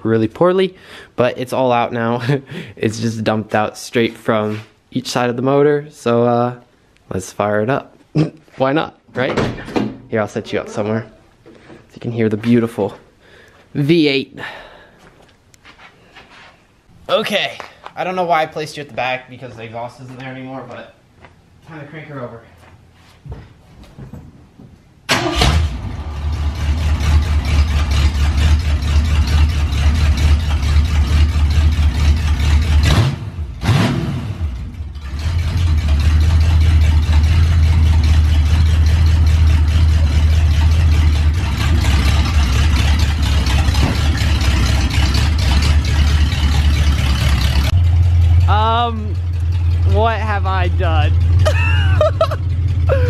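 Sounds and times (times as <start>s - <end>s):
loud car engine starting and running: 25.1s - 53.0s
exhaust pipe ticking: 35.0s - 53.0s.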